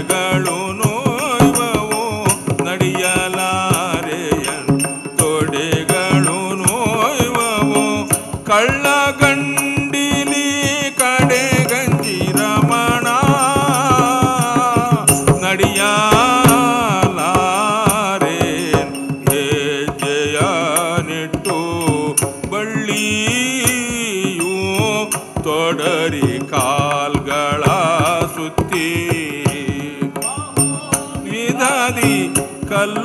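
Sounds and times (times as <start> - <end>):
percussion strokes: 0.0 - 33.0.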